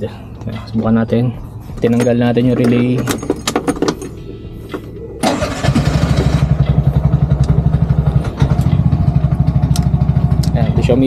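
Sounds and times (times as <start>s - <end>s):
engine idling: 4.1s - 11.0s
engine cranking: 5.2s - 10.8s.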